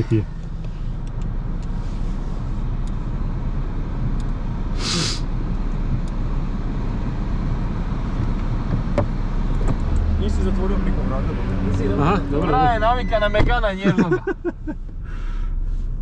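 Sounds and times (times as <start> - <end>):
car engine idling: 0.0 - 16.0
short sharp hiss: 4.8 - 5.3.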